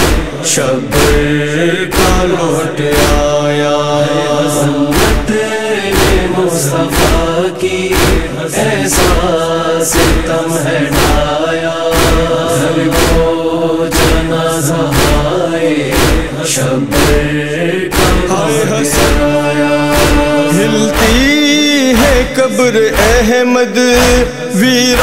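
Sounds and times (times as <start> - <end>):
chorus chanting a lament: 0.0 - 25.0
steady beat: 0.0 - 25.0.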